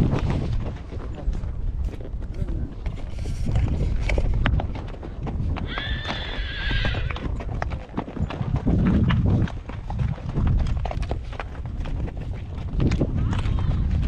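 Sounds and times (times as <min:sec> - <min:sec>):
horse hooves clip-clopping: 0:00.0 - 0:14.0
horse whinnying: 0:05.6 - 0:07.3.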